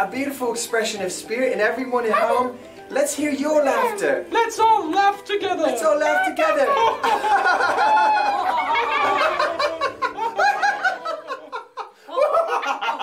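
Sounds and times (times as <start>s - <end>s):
people laughing in puppet voices: 6.6s - 13.0s.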